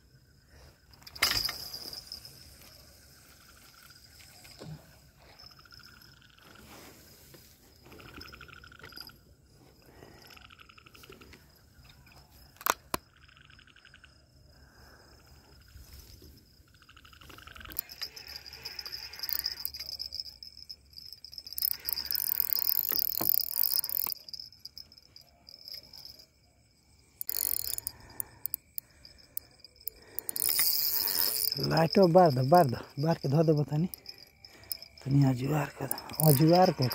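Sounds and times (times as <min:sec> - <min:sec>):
high insect whine: 0:00.0 - 0:36.9
night insects and frogs trilling: 0:00.0 - 0:36.9
fishing reel clicks: 0:17.3 - 0:20.4, 0:21.3 - 0:24.9, 0:27.2 - 0:33.0, 0:33.8 - 0:35.1, 0:35.9 - 0:36.9.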